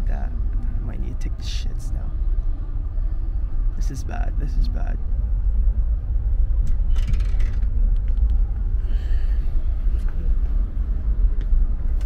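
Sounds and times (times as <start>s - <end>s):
train carriage rumbling on track: 0.0s - 12.0s
short clatter: 6.6s - 8.3s.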